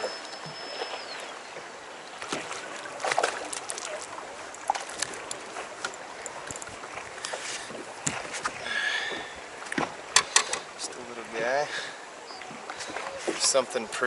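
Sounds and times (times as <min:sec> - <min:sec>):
water lapping at hull: 0:00.0 - 0:14.0
fish splashing at surface: 0:02.2 - 0:05.7.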